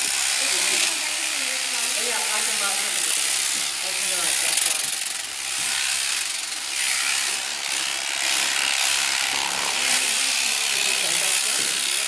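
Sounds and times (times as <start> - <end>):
power shears cutting fleece: 0.0 - 12.0.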